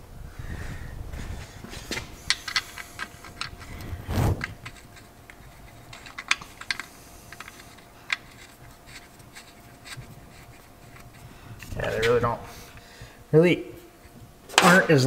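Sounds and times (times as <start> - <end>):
wrench clicking on metal: 2.3 - 3.9, 4.5 - 10.0.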